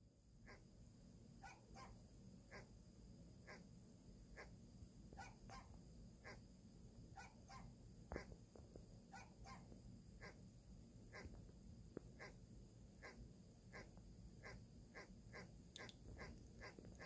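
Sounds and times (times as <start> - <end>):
dog yaps through phone speaker: 1.4 - 2.7, 5.2 - 5.7, 7.2 - 7.7, 9.2 - 10.4, 13.0 - 15.5.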